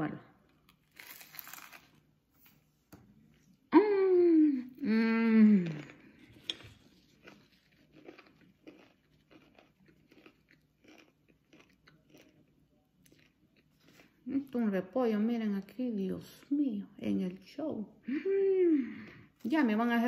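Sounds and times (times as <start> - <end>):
crunching while chewing: 0.5 - 2.6, 6.8 - 14.2
crunch of biting fried food: 0.7 - 2.0, 7.2 - 12.5.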